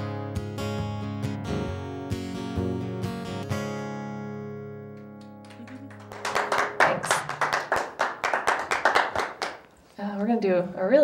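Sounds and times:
acoustic guitar chord ringing: 0.0s - 5.4s
people clapping: 4.9s - 9.7s.

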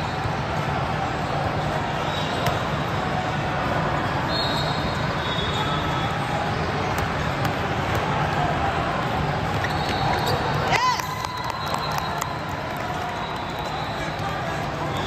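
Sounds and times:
crowd and court din: 0.0s - 15.0s
sneakers squeaking on hardwood: 9.5s - 10.6s.

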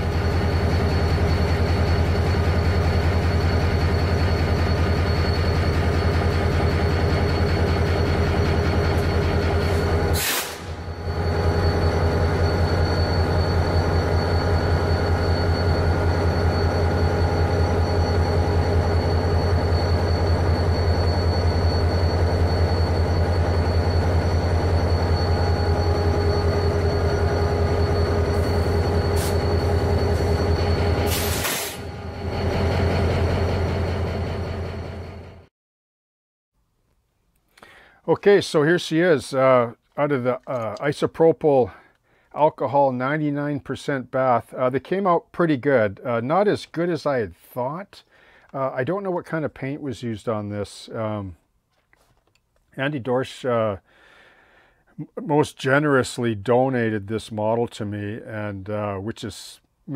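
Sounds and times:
diesel locomotive idling: 0.0s - 35.5s.

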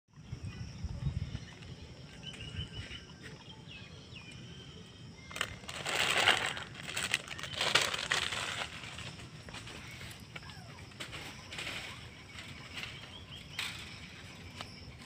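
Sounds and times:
small birds chirping: 0.1s - 15.0s
loud crunching rustle: 5.2s - 15.0s.

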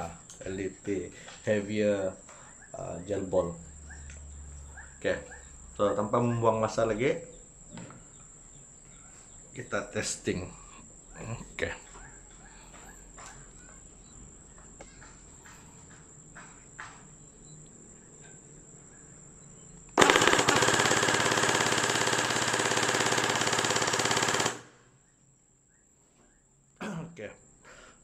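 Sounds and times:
gel blaster full-auto burst: 20.0s - 24.8s.

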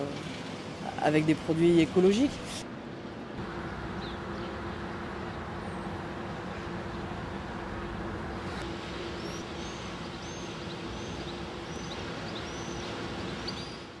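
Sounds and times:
industrial machinery drone: 3.2s - 14.0s
small bird chirping: 9.2s - 14.0s.

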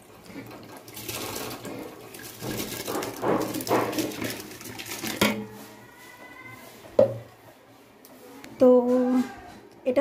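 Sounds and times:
rice pouring into water: 0.0s - 5.2s.

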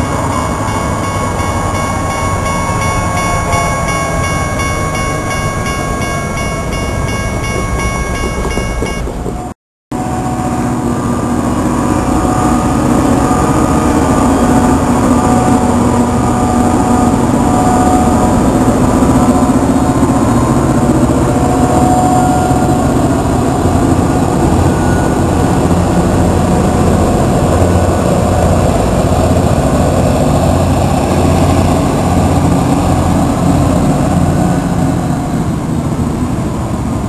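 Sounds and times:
crossing bells ringing: 0.0s - 9.5s
diesel locomotive engines droning: 0.0s - 37.0s.

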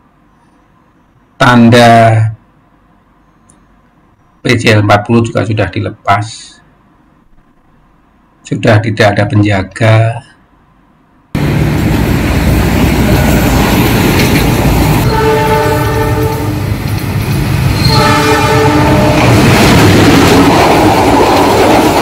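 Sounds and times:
passing trains rumble: 11.4s - 22.0s
train horn blowing: 13.0s - 13.8s, 15.0s - 16.8s, 17.8s - 19.4s.

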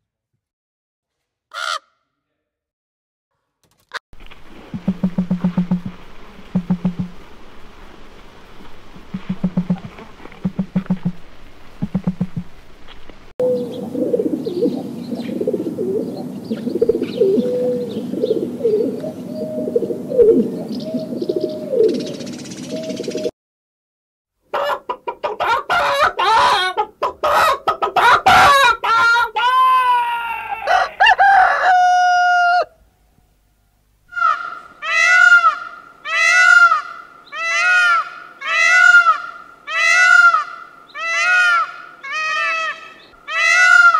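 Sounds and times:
pigeons cooing: 13.4s - 23.3s
peacock honking call: 34.1s - 43.9s.

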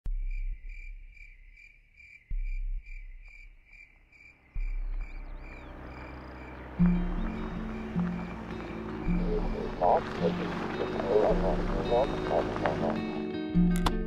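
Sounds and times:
crickets chirping: 0.1s - 13.2s
deep low hum: 4.6s - 13.2s.

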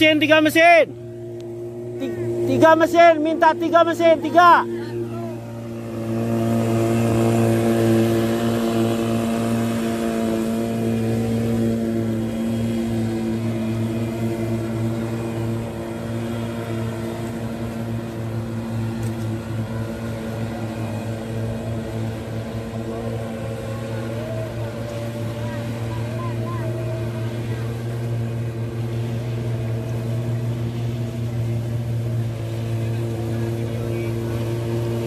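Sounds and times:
motorboat engine running: 0.0s - 35.0s
water rushing under hull: 0.0s - 35.0s.

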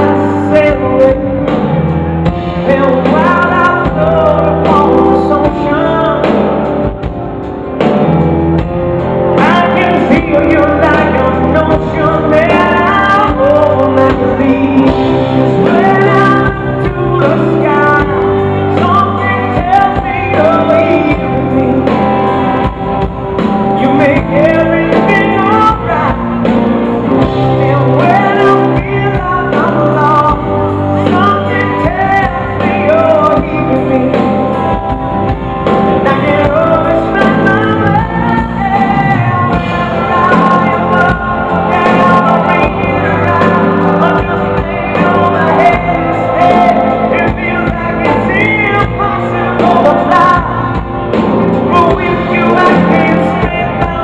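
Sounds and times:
live pop-rock band playing: 0.0s - 54.0s
person singing: 0.0s - 54.0s.

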